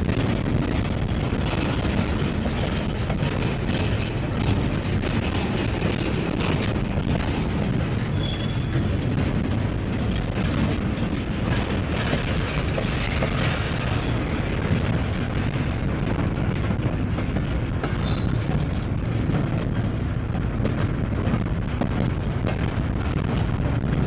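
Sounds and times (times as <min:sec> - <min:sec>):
freight train wheels rattling on rail: 0:00.0 - 0:24.0
high train squeal: 0:08.1 - 0:09.2, 0:17.9 - 0:18.5.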